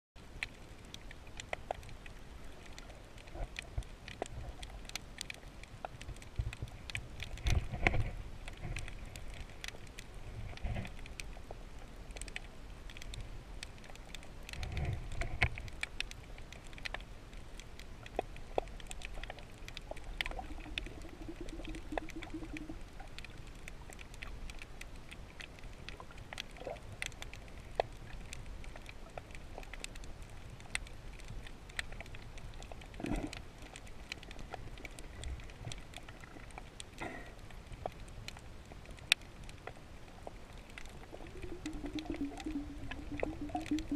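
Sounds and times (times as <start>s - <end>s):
underwater clicks and crackles: 0.2s - 43.9s
rushing water rumbles: 20.2s - 22.9s, 40.9s - 43.9s
faint hum: 41.0s - 43.9s.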